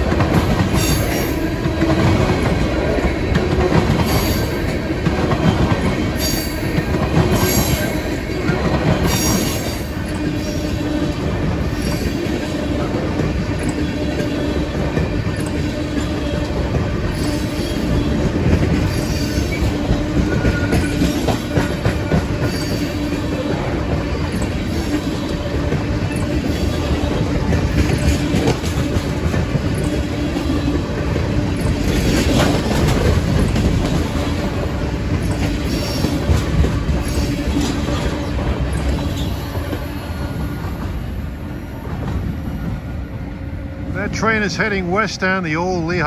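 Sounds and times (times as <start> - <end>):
wheels clacking over rail joints: 0.0 - 41.0
train wheels rumbling on rail: 0.0 - 46.0
wheel squeal: 37.0 - 40.7.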